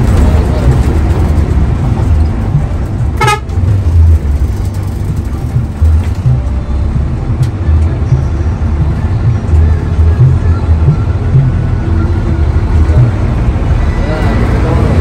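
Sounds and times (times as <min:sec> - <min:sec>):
bus diesel engine rumble: 0:00.0 - 0:15.0
road noise: 0:00.0 - 0:15.0
horn toot: 0:03.2 - 0:03.5.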